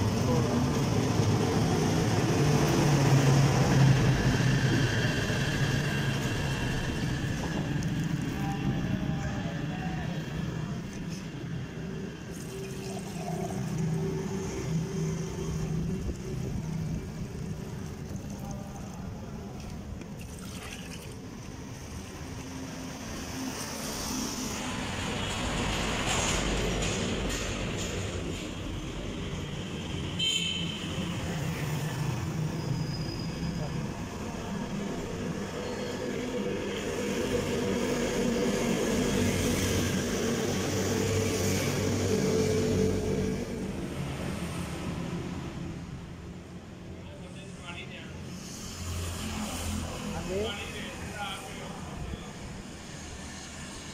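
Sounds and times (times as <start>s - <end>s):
low rumble of road traffic: 0.0s - 53.9s
passing vehicles: 0.0s - 53.9s
lemonade pouring into plastic jug: 12.3s - 14.6s, 15.7s - 21.9s.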